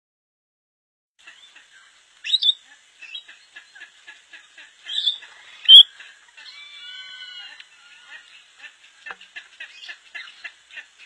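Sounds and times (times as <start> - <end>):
lorikeets chattering: 1.3 - 8.6, 9.6 - 10.9
whistled bird calls: 2.2 - 3.2, 4.9 - 5.9.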